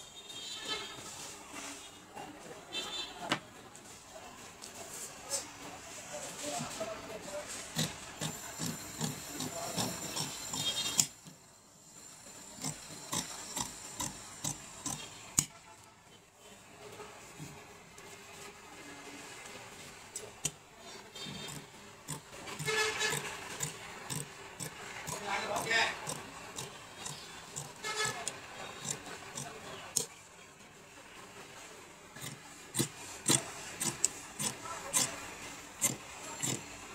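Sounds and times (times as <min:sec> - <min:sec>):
shears snipping fabric: 0:07.4 - 0:11.4, 0:20.2 - 0:30.1, 0:32.2 - 0:36.8.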